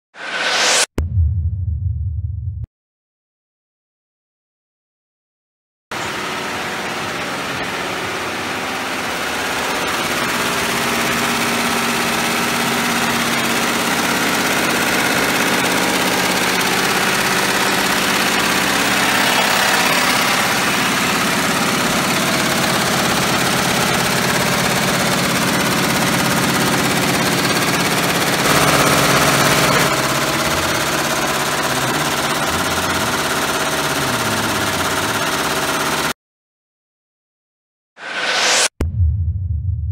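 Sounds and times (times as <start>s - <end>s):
embroidery machines humming and clattering: 6.0s - 36.1s.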